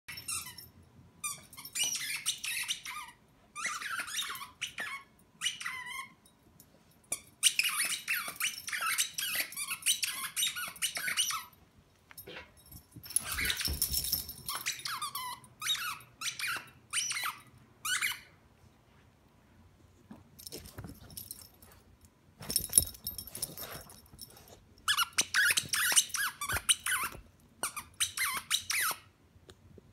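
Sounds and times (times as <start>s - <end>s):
dog chewing squeaky toy: 0.1s - 6.2s, 7.1s - 11.6s, 13.1s - 18.4s, 22.5s - 29.1s.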